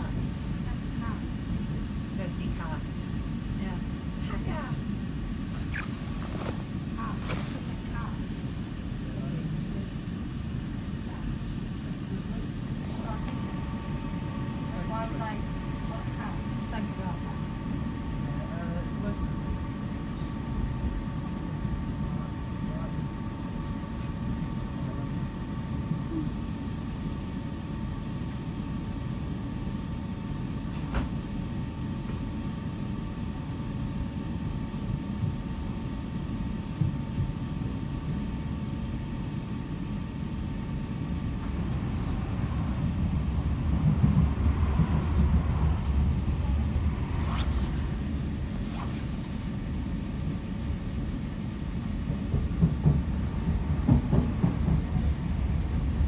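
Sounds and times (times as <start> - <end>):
train wheels rumbling on track: 41.0 - 50.5, 51.5 - 56.0.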